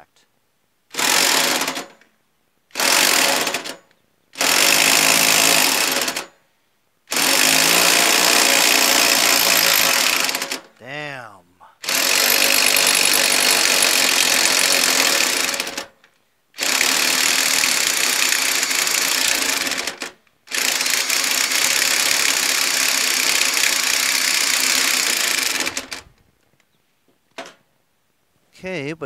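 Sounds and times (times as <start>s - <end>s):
impact wrench hammering: 4.4s - 6.3s, 7.2s - 10.6s, 11.9s - 15.3s.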